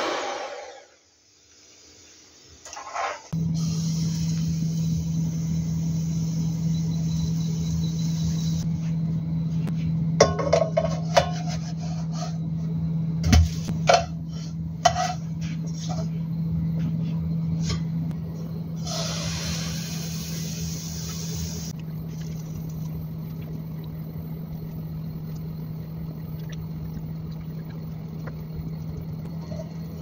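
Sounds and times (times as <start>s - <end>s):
low steady hum: 3.3s - 30.0s.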